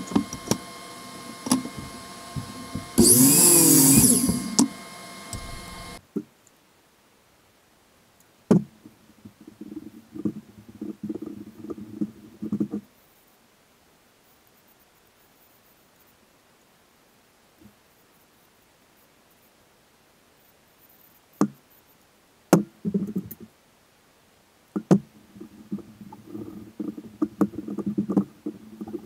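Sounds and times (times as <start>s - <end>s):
miter saw cutting wood: 0.0s - 6.0s
steady shop hum: 0.0s - 6.0s.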